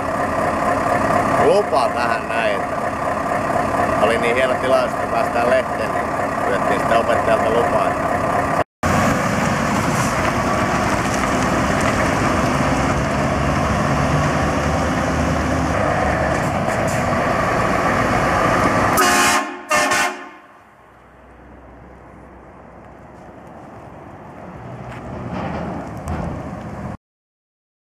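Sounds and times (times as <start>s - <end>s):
diesel truck engine running: 0.0s - 27.0s
truck horn blasts: 18.9s - 20.6s.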